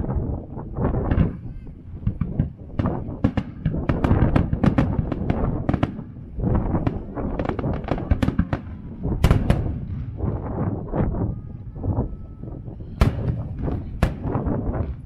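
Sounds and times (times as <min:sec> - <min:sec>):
firework bangs and crackles: 0:00.0 - 0:15.0
low rumble: 0:00.0 - 0:15.0.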